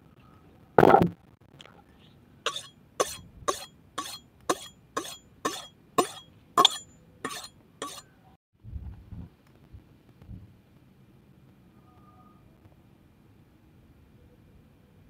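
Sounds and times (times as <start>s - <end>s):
knife scraping on sharpening steel: 2.5s - 8.2s.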